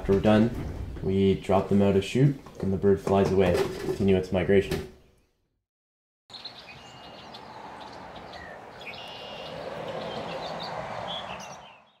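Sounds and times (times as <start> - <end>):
songbirds chirping: 0.0 - 3.4, 6.3 - 12.0.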